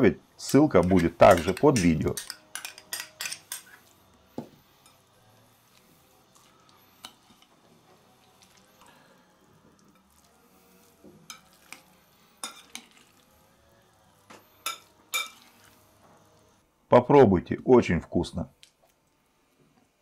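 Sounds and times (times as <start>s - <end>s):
soft wet mixing of salad: 0.4s - 16.6s, 18.5s - 20.0s
spoon clinking against bowl: 0.8s - 3.9s, 14.6s - 15.5s.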